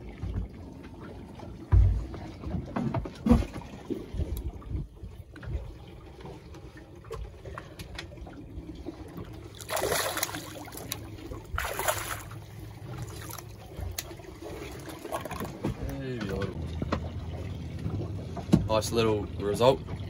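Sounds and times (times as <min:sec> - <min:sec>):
fish splashing at water surface: 0:09.3 - 0:15.8.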